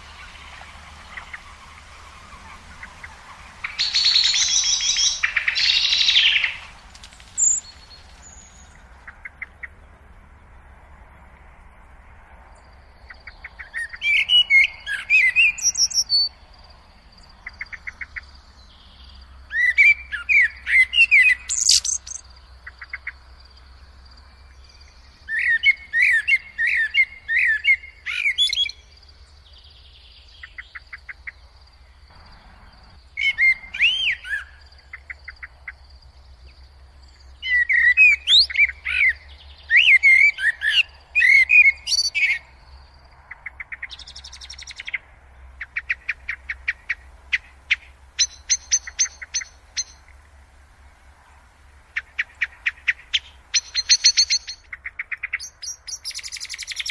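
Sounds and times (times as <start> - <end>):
blackbird singing: 0.0 - 6.7, 7.4 - 9.7, 13.1 - 16.3, 17.4 - 23.2, 24.3 - 35.8, 36.4 - 42.8, 43.4 - 45.0, 45.6 - 50.0, 52.0 - 56.9
faint rapid bird trills: 0.0 - 10.6, 17.0 - 51.2.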